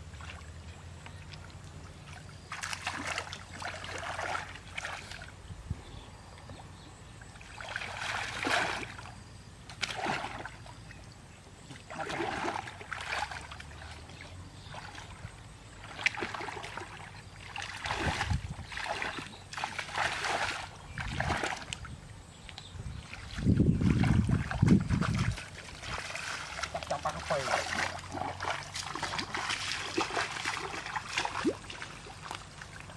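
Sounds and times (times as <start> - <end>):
muddy water splashing: 0.0 - 5.4, 7.2 - 32.9.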